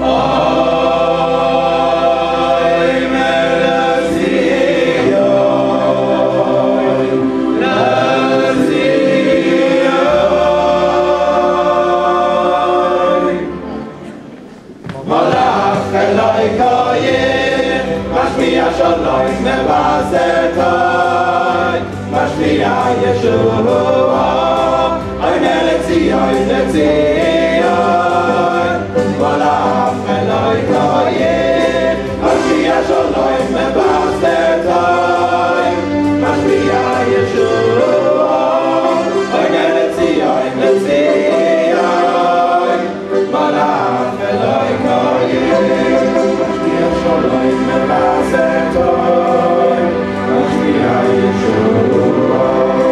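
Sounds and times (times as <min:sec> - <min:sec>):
choir singing: 0:00.0 - 0:52.9.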